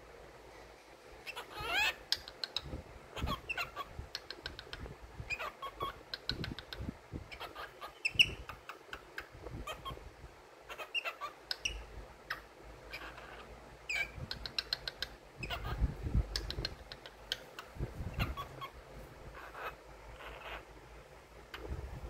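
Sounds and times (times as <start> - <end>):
cockatiel chirps: 1.2 - 8.8, 9.6 - 10.0, 10.7 - 15.8, 16.4 - 18.8, 19.4 - 20.7.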